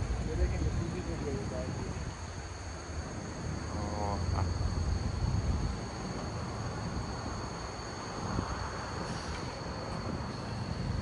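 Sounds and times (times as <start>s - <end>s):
low rumble of traffic: 0.0s - 11.0s
wind buffeting microphone: 4.2s - 11.0s.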